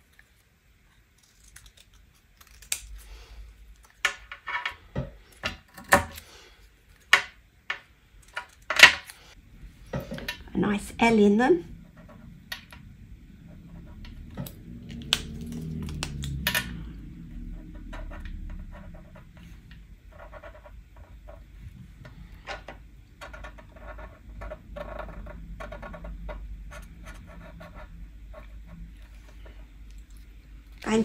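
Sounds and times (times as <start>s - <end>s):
marker pen scratching on paper: 17.9s - 21.5s, 23.6s - 28.8s.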